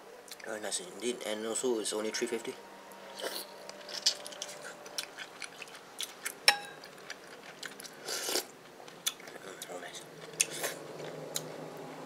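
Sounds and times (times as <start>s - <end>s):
chewing: 3.2s - 11.6s
spoon and chopsticks clinking bowls: 6.5s - 6.9s.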